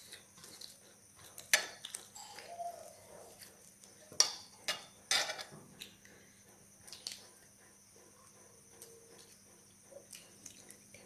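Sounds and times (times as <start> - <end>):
jewellery clinking on plates: 4.1 - 5.5.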